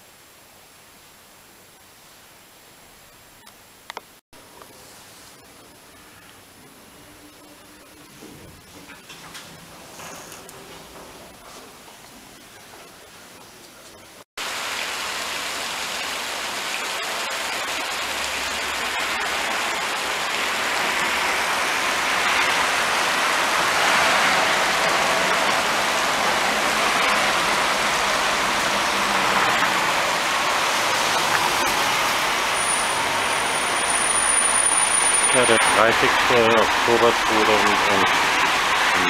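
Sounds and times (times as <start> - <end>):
street traffic rushing: 18.0 - 39.0.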